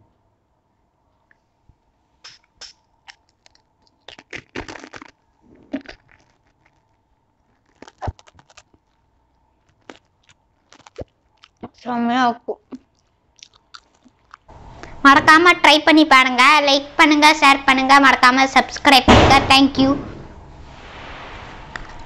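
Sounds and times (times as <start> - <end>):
crisp snack crunching: 3.0 - 11.8, 12.6 - 14.5.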